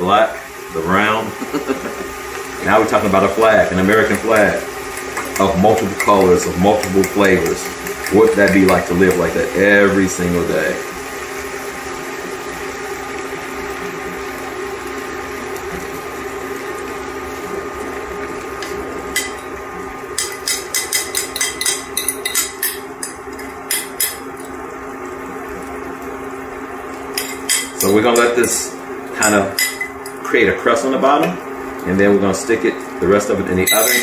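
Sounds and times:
eggs sizzling in skillet: 0:00.0 - 0:34.0
steady hum: 0:00.0 - 0:34.0
utensil tapping bowl: 0:03.8 - 0:09.3, 0:20.2 - 0:24.2.

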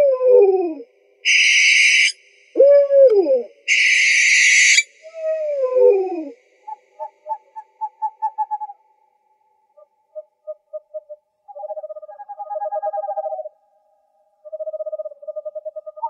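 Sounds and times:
owl hooting: 0:00.0 - 0:08.8, 0:10.1 - 0:13.6, 0:14.4 - 0:16.0
owl hissing screech: 0:01.2 - 0:02.2, 0:03.7 - 0:04.9.

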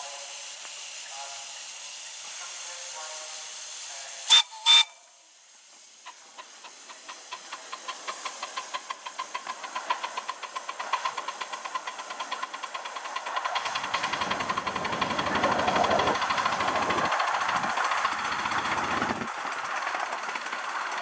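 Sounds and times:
steam locomotive chuffing: 0:00.0 - 0:21.0
steam locomotive whistle toots: 0:02.9 - 0:05.2.

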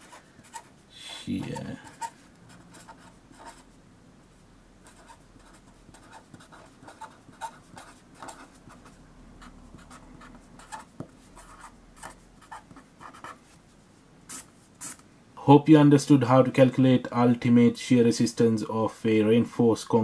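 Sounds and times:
pen scratching on paper: 0:00.0 - 0:03.7, 0:04.8 - 0:13.4.

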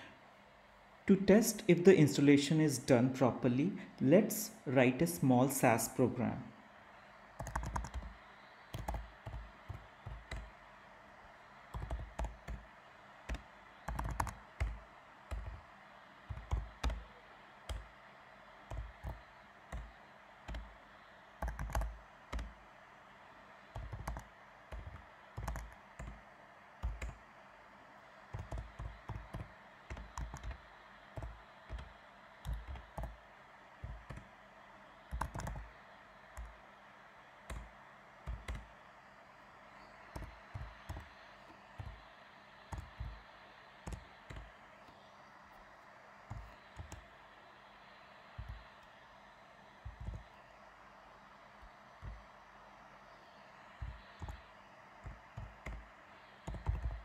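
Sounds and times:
typing on a keyboard: 0:07.4 - 0:10.5, 0:11.7 - 0:12.7, 0:13.3 - 0:15.6, 0:16.3 - 0:17.9, 0:18.7 - 0:19.9, 0:20.5 - 0:20.7, 0:21.4 - 0:22.5, 0:23.7 - 0:26.2, 0:26.8 - 0:27.2, 0:28.3 - 0:33.2, 0:33.8 - 0:34.3, 0:35.0 - 0:36.6, 0:37.5 - 0:38.7, 0:40.0 - 0:42.0, 0:42.7 - 0:43.2, 0:43.8 - 0:45.0, 0:46.3 - 0:47.0, 0:48.4 - 0:48.6, 0:49.8 - 0:50.4, 0:52.0 - 0:52.2, 0:53.8 - 0:57.0.

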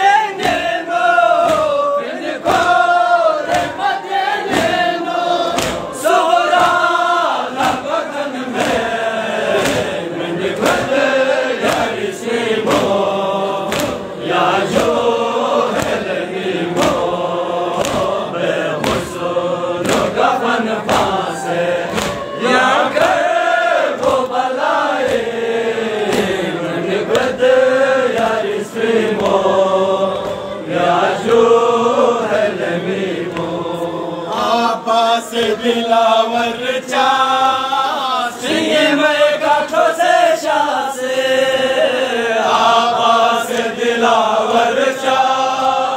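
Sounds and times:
men chanting a lament: 0:00.0 - 0:45.9
chest-beating slaps: 0:00.4 - 0:11.0, 0:11.6 - 0:15.1, 0:15.7 - 0:27.4, 0:28.0 - 0:29.5, 0:30.1 - 0:31.5, 0:33.1 - 0:33.9.

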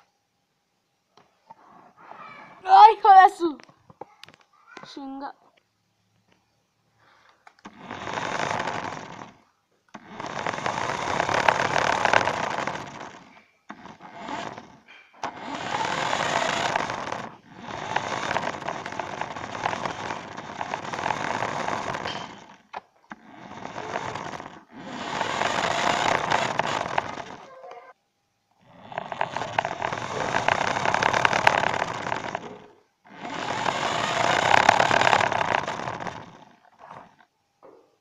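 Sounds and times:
toy car motor whirring: 0:07.6 - 0:28.0, 0:28.6 - 0:37.3
tyres rolling on hard floor: 0:10.0 - 0:22.8.

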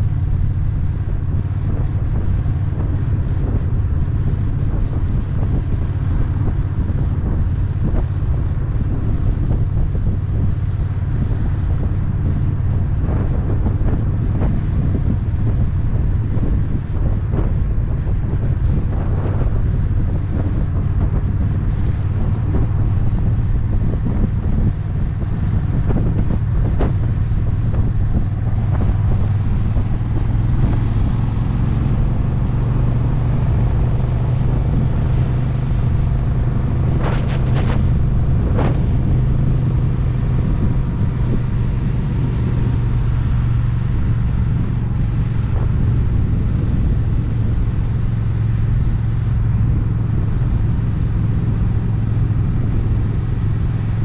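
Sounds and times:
motorcycle engine running: 0:00.0 - 0:54.0
road noise: 0:00.0 - 0:54.0
wind rush: 0:00.0 - 0:54.0.

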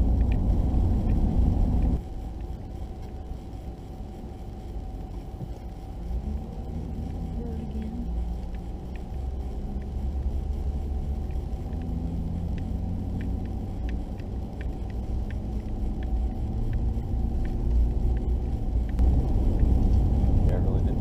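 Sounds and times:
road and engine rumble: 0:00.0 - 0:21.0
light ticks: 0:06.9 - 0:20.1.

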